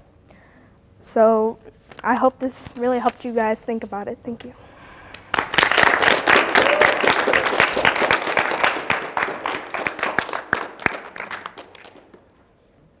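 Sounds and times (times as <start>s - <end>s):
audience applauding: 5.1s - 12.3s.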